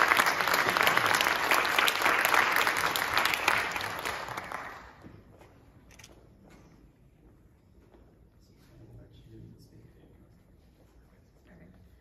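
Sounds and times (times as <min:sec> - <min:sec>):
audience applause: 0:00.0 - 0:05.0.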